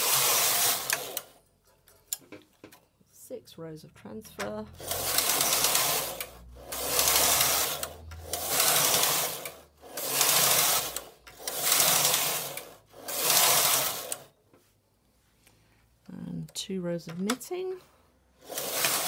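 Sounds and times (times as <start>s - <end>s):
knitting machine carriage rattling: 0.0s - 2.4s, 4.4s - 14.3s, 18.4s - 19.0s.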